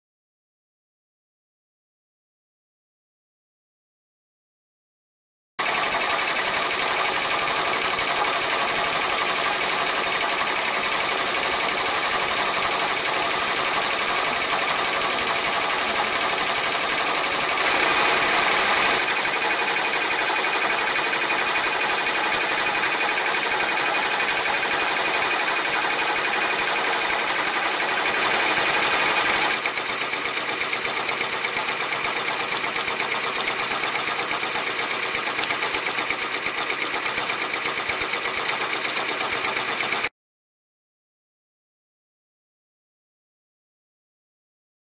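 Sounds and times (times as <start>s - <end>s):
embroidery machine stitching: 5.6s - 40.1s.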